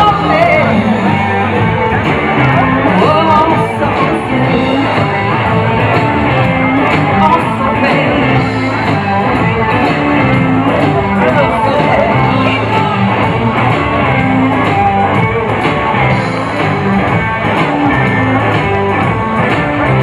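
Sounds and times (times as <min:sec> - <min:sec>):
person singing: 0:00.0 - 0:15.5
amplified guitar: 0:00.0 - 0:20.0
live rock band: 0:00.0 - 0:20.0.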